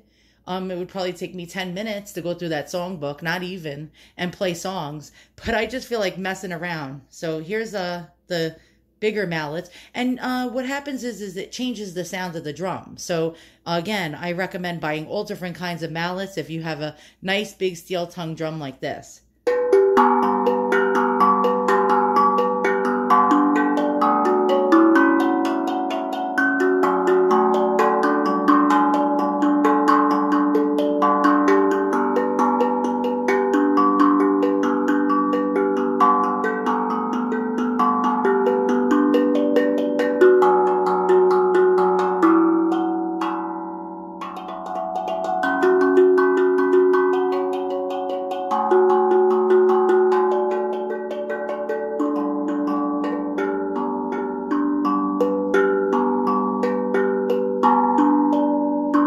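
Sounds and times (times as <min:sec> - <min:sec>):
steel tongue drum notes ringing: 0:19.4 - 0:59.0.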